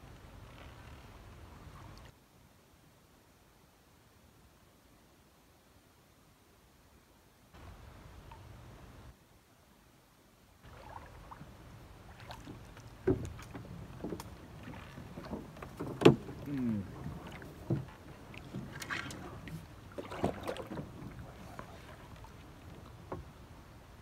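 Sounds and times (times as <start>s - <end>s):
branches scraping along boat: 0.0s - 2.1s, 10.6s - 24.0s
paddle knocking on canoe hull: 12.2s - 23.3s.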